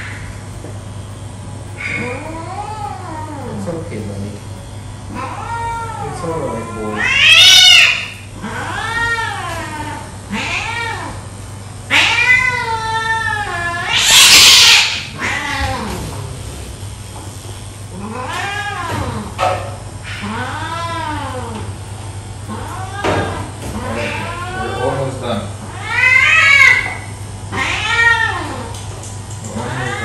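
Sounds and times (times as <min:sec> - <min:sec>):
steady low hum: 0:00.0 - 0:30.0
cat yowling: 0:01.8 - 0:03.7, 0:05.1 - 0:11.2, 0:11.9 - 0:16.0, 0:18.0 - 0:19.4, 0:22.5 - 0:24.9, 0:25.7 - 0:28.7, 0:29.5 - 0:30.0
cat hissing: 0:06.6 - 0:11.1, 0:13.5 - 0:16.2.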